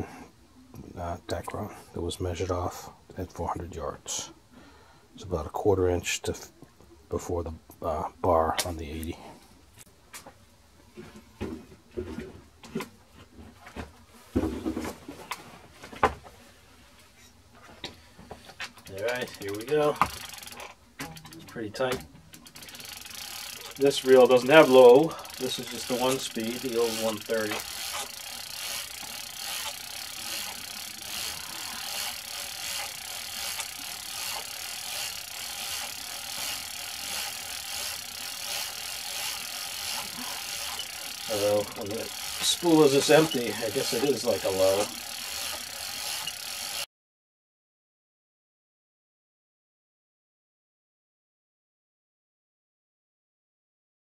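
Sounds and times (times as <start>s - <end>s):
handling knocks and clicks: 17.8s - 22.8s
fishing reel ratchet clicking: 18.9s - 46.9s.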